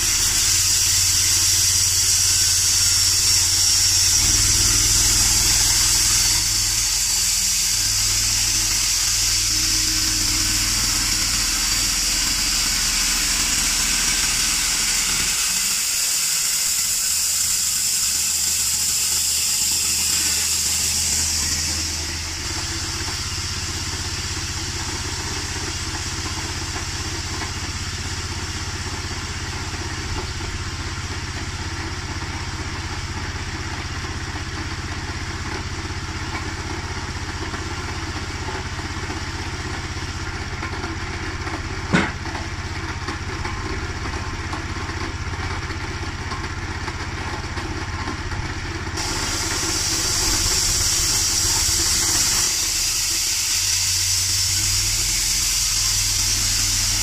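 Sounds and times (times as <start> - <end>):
sawmill blade high hiss: 0.0 - 30.0, 49.0 - 57.0
small petrol engine running: 0.0 - 57.0.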